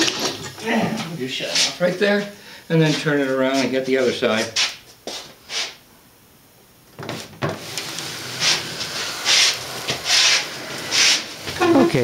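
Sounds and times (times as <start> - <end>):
scraping on bench: 7.0 - 11.7.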